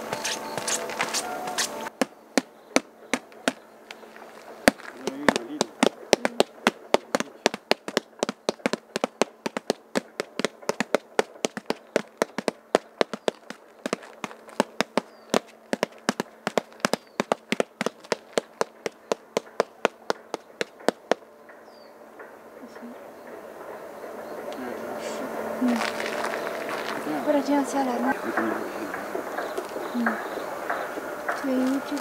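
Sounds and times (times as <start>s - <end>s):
ink dabbers tapping on paper: 4.7s - 21.2s.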